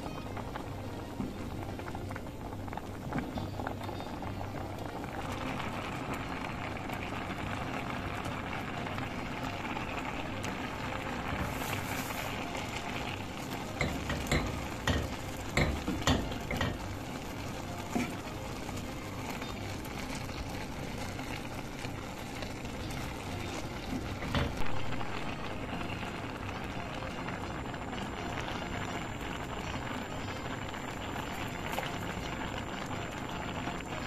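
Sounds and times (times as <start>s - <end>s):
rice cooking with a hiss: 0.0s - 34.0s
wooden spoon knocking on pot: 13.8s - 16.8s.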